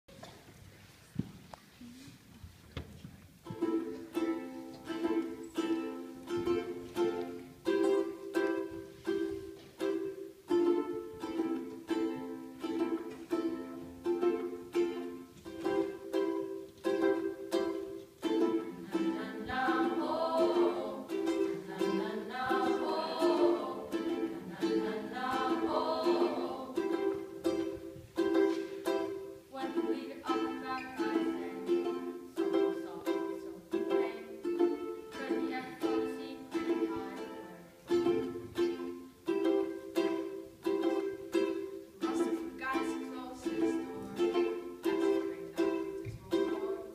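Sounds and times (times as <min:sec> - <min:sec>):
ukulele strumming: 0:03.4 - 0:46.9
voices singing: 0:18.4 - 0:27.9, 0:29.0 - 0:39.0, 0:42.0 - 0:46.9.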